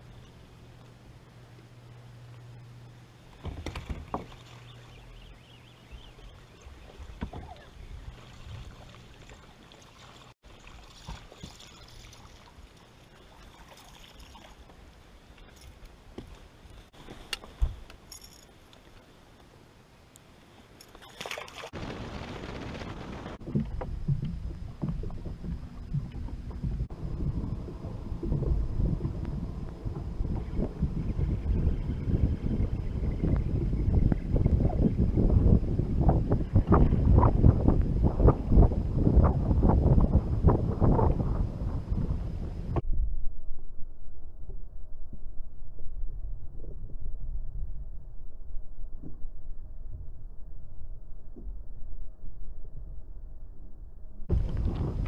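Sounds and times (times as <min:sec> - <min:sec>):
faint steady hum: 0:00.0 - 0:55.0
knocks and clunks on boat deck: 0:03.4 - 0:04.4, 0:23.4 - 0:26.9
wind on microphone: 0:21.7 - 0:53.3, 0:54.3 - 0:55.0.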